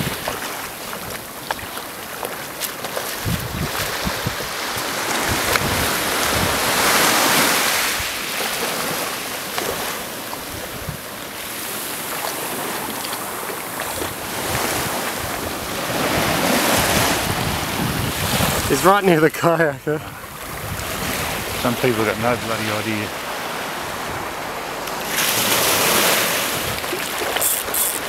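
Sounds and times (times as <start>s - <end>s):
small waves washing on shore: 0.0s - 28.0s
wind buffeting microphone: 3.0s - 8.2s, 10.4s - 11.1s, 13.8s - 22.6s.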